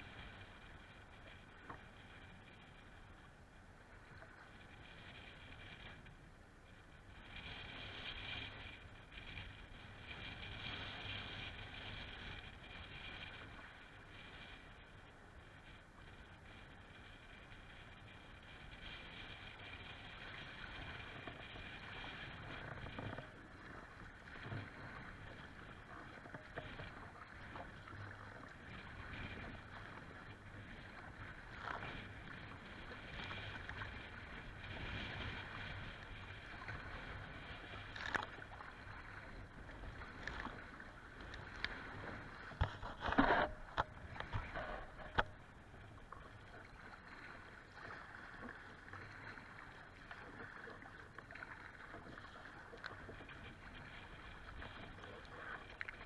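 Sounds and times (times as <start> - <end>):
water slapping against kayak: 19.0 - 56.0
rush of water: 20.2 - 56.0.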